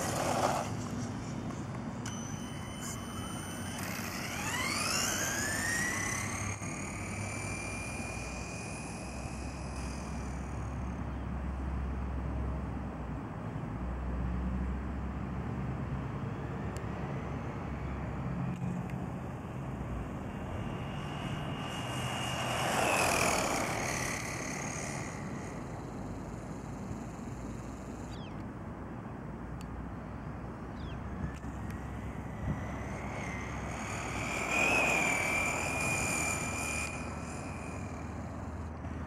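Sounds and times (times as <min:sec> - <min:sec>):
electric toy car motor whining: 0:00.0 - 0:11.2, 0:18.5 - 0:28.2, 0:31.2 - 0:39.0.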